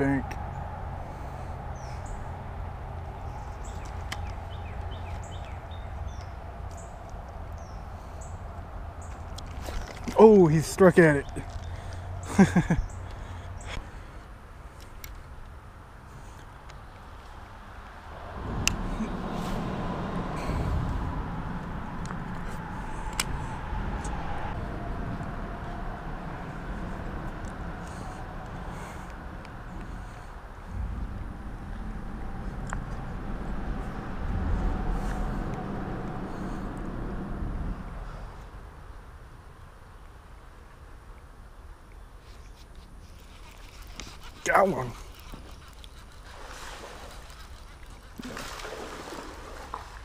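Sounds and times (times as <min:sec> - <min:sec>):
faint tyre hum: 0:00.0 - 0:50.0
traffic rumble on bridge: 0:00.0 - 0:50.0
birds calling: 0:00.5 - 0:14.1.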